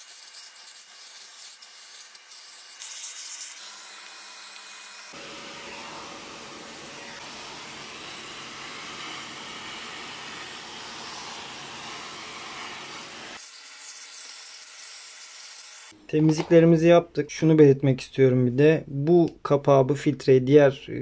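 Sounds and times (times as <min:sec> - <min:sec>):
vacuum cleaner running: 0:02.8 - 0:13.4.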